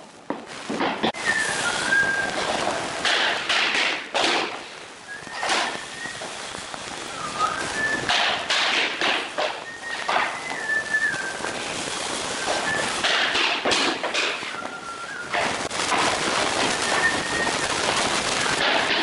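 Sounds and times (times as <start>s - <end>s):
thin whistled tone: 1.2s - 2.4s, 5.1s - 8.5s, 9.5s - 13.3s, 14.3s - 15.5s, 16.7s - 17.8s.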